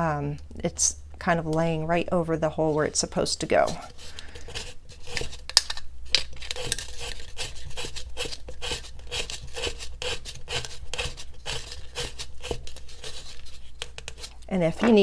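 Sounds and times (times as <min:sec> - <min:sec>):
leather lace rubbing and scratching: 0:06.3 - 0:14.4.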